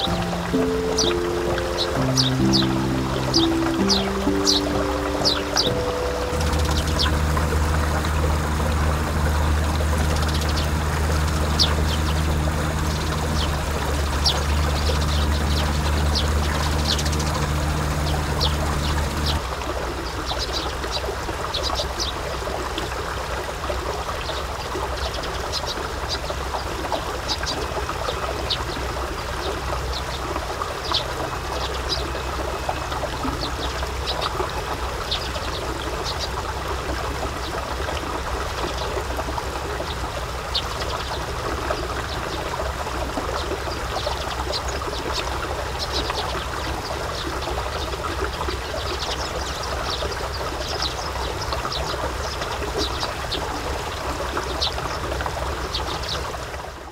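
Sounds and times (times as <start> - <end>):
water trickling and pouring: 0.0 - 56.9
low rumble: 5.6 - 19.4.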